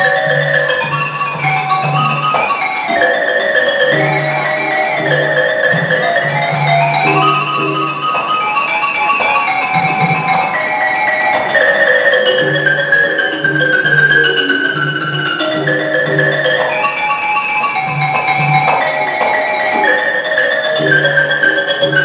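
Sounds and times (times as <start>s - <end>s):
xylophone mallet lines: 0.0s - 22.0s.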